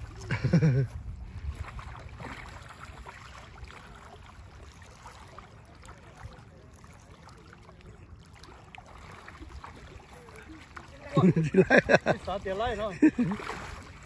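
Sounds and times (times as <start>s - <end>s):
wind rumble on microphone: 0.0s - 4.6s
light water sounds: 0.0s - 14.0s.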